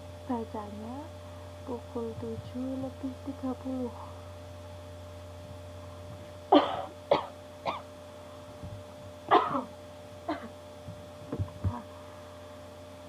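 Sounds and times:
person coughing: 6.5 - 7.9, 9.3 - 10.6.

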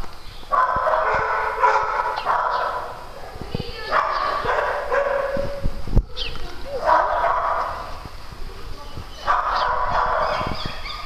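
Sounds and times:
dogs whining and yipping: 9.1 - 11.0.

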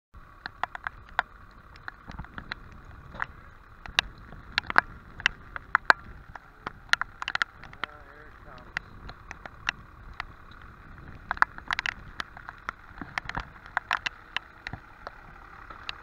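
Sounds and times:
sharp taps and clicks: 0.4 - 16.0.

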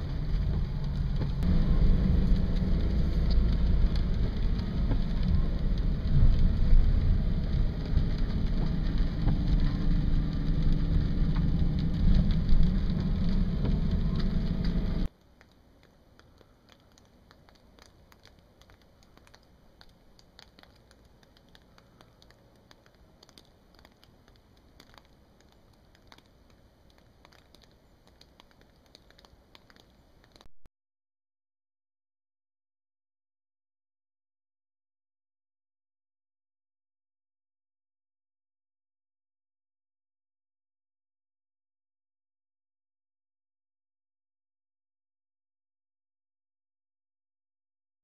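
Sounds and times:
loud outdoor rushing noise: 0.0 - 15.1
small ticks: 14.1 - 30.5.

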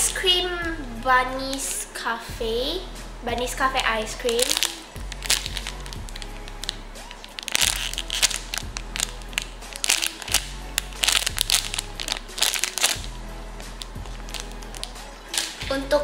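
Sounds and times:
soft background music: 0.0 - 16.0
plastic bag crinkling: 4.2 - 13.1, 13.8 - 15.7.

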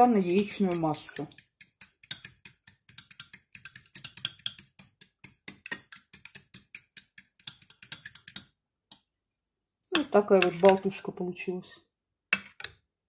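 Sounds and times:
fork beating in ceramic bowl: 0.0 - 8.5.

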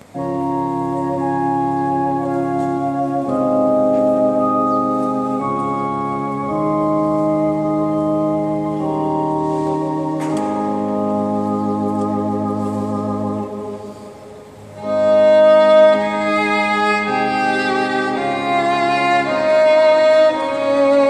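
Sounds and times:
organ chords on keyboard: 0.0 - 21.0.

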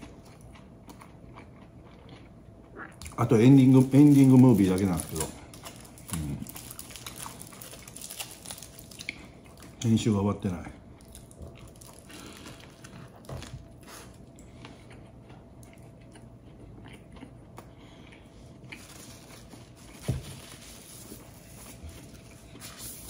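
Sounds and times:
person chewing sandwich: 0.0 - 9.8, 10.8 - 23.0
bread crust crunching: 3.0 - 10.0, 11.0 - 23.0.

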